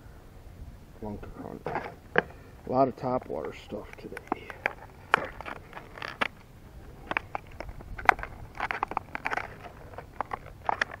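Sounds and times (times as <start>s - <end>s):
plastic packaging crinkling: 3.3s - 11.0s
plastic packaging clicking: 7.0s - 11.0s.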